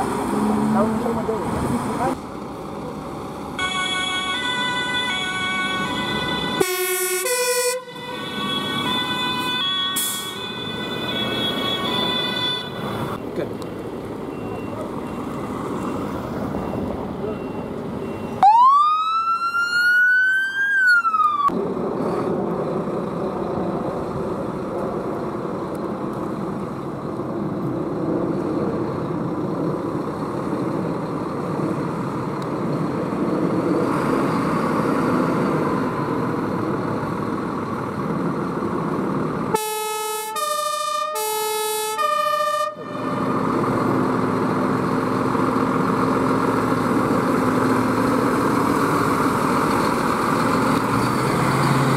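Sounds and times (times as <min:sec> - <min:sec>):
fire engine diesel engines: 0:00.0 - 0:51.9
police siren wail: 0:03.6 - 0:13.2, 0:18.3 - 0:21.5, 0:39.5 - 0:43.9
two-tone fire engine siren: 0:03.6 - 0:13.2, 0:16.7 - 0:21.5, 0:39.5 - 0:44.1.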